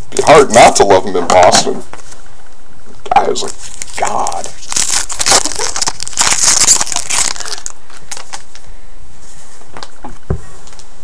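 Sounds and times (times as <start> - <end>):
wrapper crinkling: 3.2 - 8.7.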